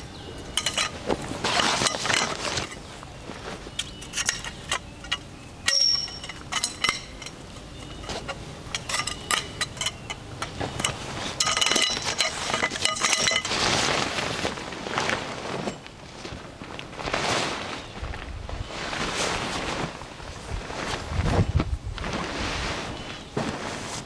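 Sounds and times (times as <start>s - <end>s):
dishes and utensils clinking: 0.5s - 2.8s, 3.8s - 13.6s.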